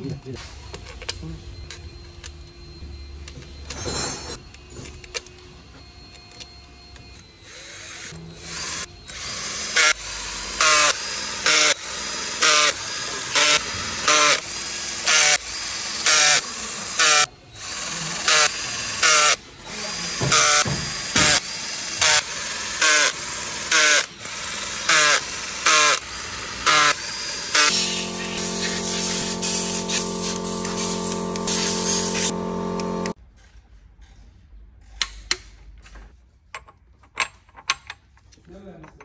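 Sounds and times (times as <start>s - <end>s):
power tool bursts: 7.5s - 33.2s.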